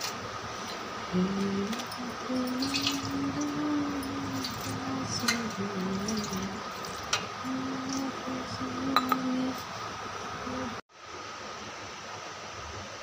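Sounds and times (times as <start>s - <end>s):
person humming: 1.1s - 6.7s, 7.4s - 9.7s, 10.4s - 10.8s.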